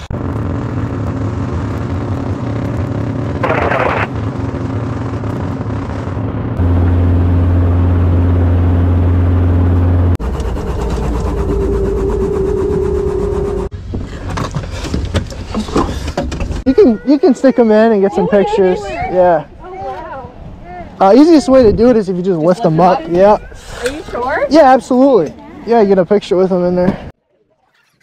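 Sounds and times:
helicopter engine and rotor drone: 0.0 - 13.7.

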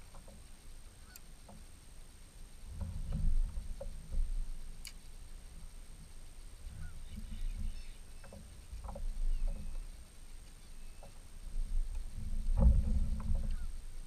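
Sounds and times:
wind rumble on microphone: 0.0 - 14.0
waterfowl honking: 6.7 - 8.4.

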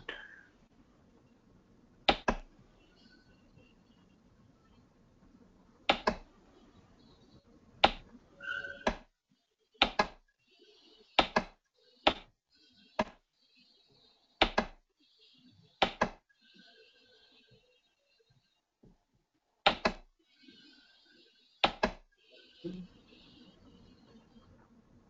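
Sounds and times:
computer mouse clicking: 2.0 - 2.5, 5.8 - 6.3, 7.8 - 8.1, 9.8 - 10.2, 11.2 - 12.3, 13.0 - 13.2, 14.4 - 14.8, 15.8 - 16.2, 19.7 - 20.1, 21.6 - 22.1.

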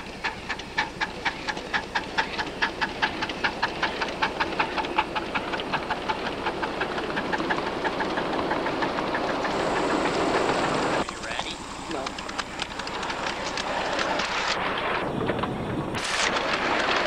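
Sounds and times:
train wheels clicking over rail joints: 0.0 - 17.0
hiss: 8.7 - 15.0, 16.0 - 16.8.

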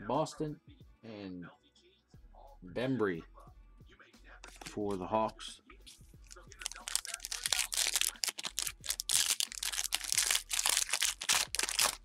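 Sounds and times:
foil wrapper crinkling and tearing: 6.2 - 12.0.

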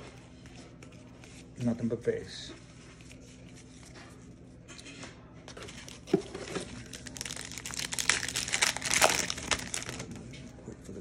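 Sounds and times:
foil wrapper crinkling and tearing: 5.7 - 10.2.

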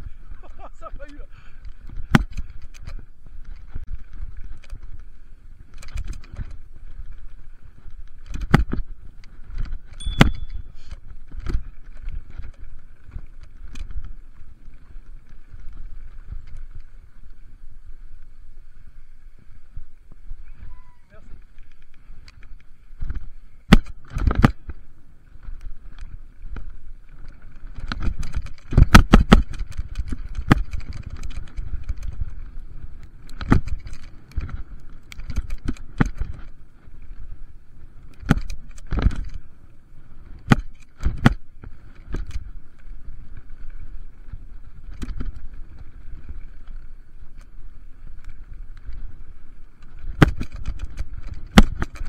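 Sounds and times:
wind: 0.0 - 52.0
bike chain clatter: 9.1 - 16.9, 27.2 - 32.6, 33.2 - 36.6
bike knocking over bumps: 27.7 - 32.2, 49.9 - 52.0.

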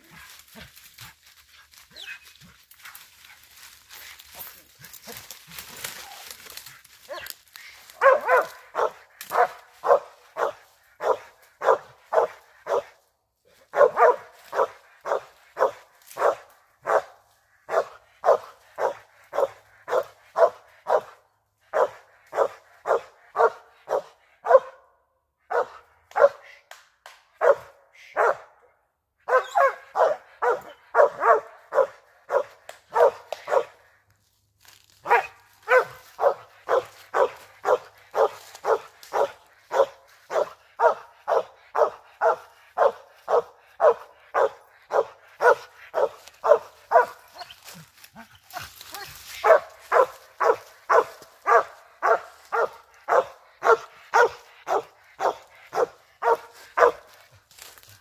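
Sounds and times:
leaves rustling: 0.0 - 11.2, 33.0 - 40.5, 44.9 - 53.2, 54.1 - 58.0
dog barking: 7.0 - 26.6, 27.4 - 33.9, 35.0 - 57.2.

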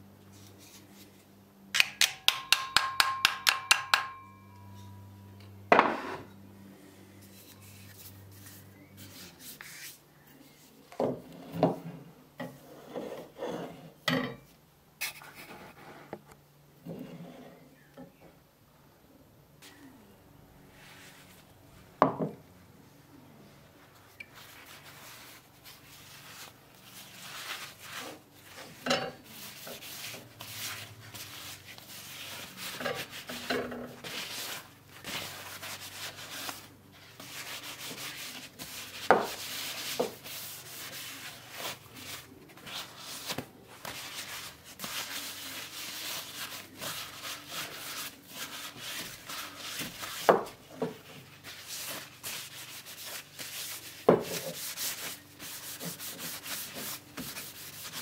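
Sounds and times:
paper towel rubbing wood: 34.0 - 58.0.

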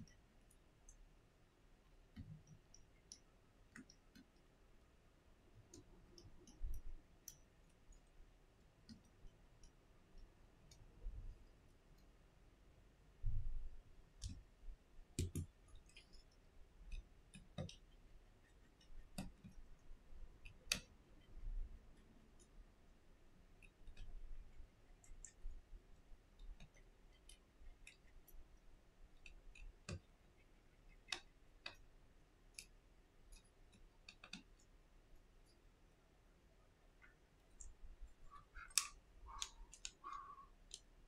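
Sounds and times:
small clicks and taps of handling: 2.1 - 4.5, 5.6 - 12.2, 14.2 - 14.5, 15.2 - 22.6, 23.5 - 35.6, 36.9 - 41.0.

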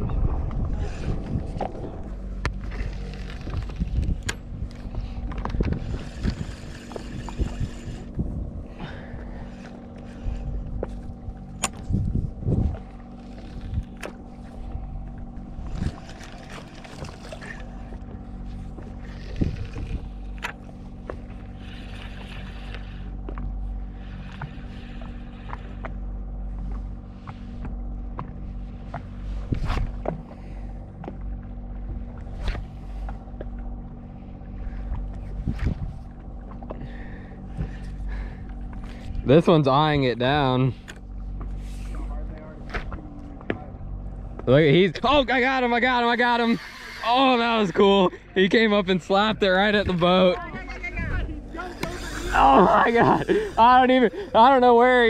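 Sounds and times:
wind and water hiss: 0.0 - 25.9, 44.5 - 55.0
boat engine idling: 0.0 - 55.0.

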